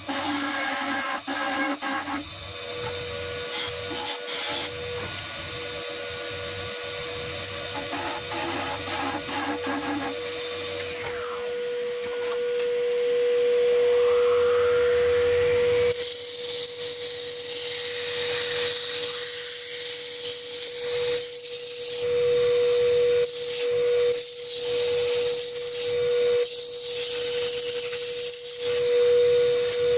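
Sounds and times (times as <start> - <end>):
turning tool cutting wood: 0.0 - 5.2, 7.6 - 11.4.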